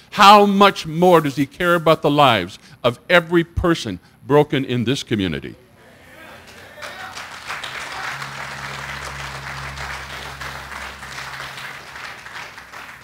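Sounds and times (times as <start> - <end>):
crowd applauding: 6.2 - 13.0
low steady tone: 7.6 - 13.0.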